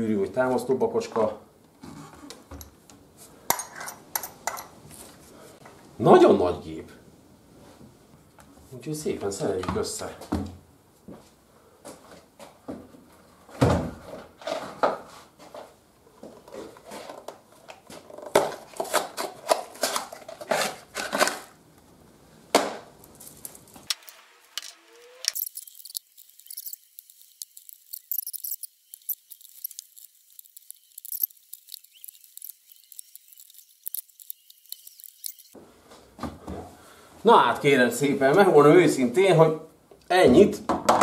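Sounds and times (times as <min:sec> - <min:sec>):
metal parts clinking and knocking: 0:24.6 - 0:35.4.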